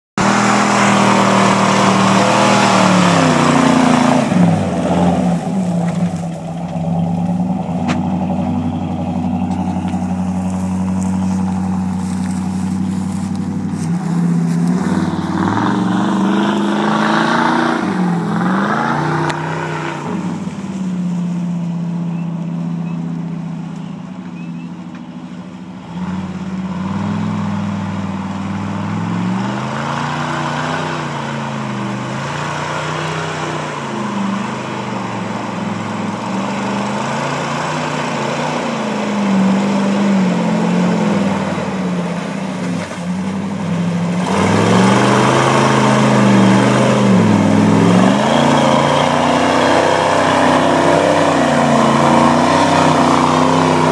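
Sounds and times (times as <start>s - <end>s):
pickup truck engine revving: 0.1s - 23.8s, 25.7s - 53.9s
tyres driving through deep mud: 0.1s - 53.9s.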